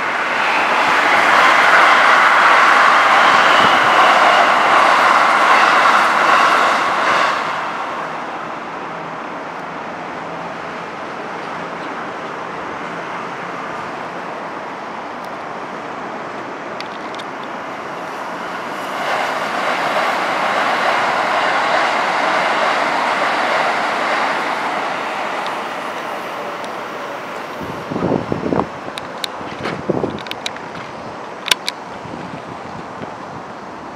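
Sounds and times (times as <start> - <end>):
train passing: 0.0 - 33.9
wind buffeting microphone: 0.1 - 8.2, 17.9 - 33.9.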